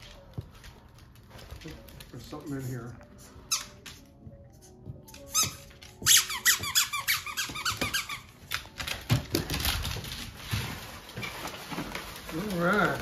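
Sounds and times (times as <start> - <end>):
squeaky dog toy: 3.5 - 3.8, 5.1 - 8.5.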